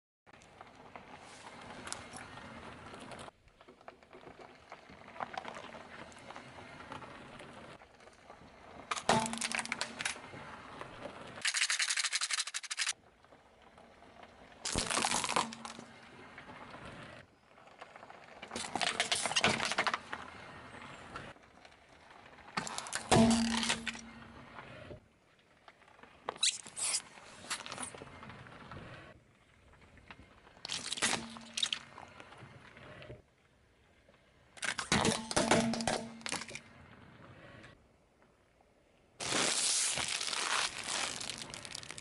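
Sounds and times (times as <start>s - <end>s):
tyre crackle on asphalt: 0.4s - 24.2s, 39.2s - 42.0s
tyre crushing plastic objects: 8.9s - 10.2s, 14.7s - 15.8s, 18.6s - 20.0s, 22.6s - 24.0s, 30.7s - 31.8s, 34.6s - 36.6s, 39.2s - 42.0s
abacus beads rattling: 11.4s - 12.9s.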